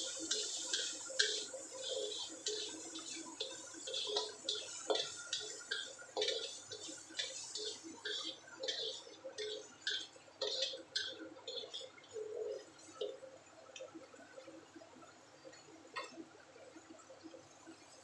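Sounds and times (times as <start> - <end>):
spatula scraping a wok: 0.0 - 12.6.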